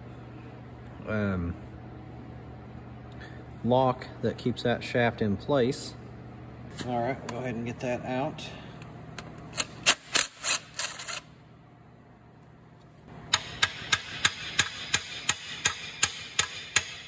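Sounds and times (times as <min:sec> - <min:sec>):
hammer tapping on steel: 0:13.3 - 0:17.0.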